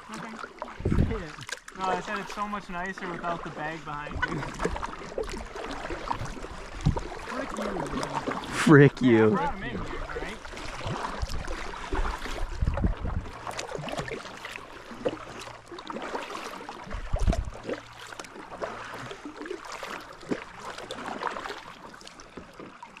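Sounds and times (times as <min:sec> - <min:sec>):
paddle strokes splashing water: 0:00.0 - 0:23.0
low rumbles: 0:12.4 - 0:13.5.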